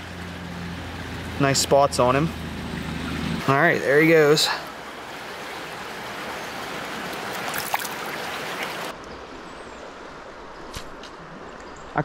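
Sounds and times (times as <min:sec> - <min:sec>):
creek water flowing: 0:00.0 - 0:12.0.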